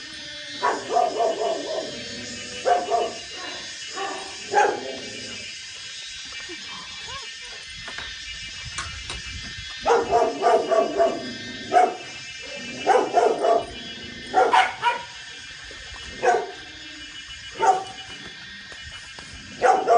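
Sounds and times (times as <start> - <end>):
dog barking: 0.6 - 1.9, 2.6 - 3.3, 3.9 - 4.9, 9.8 - 12.0, 12.8 - 15.2, 16.2 - 16.6, 17.6 - 18.0, 19.6 - 19.9.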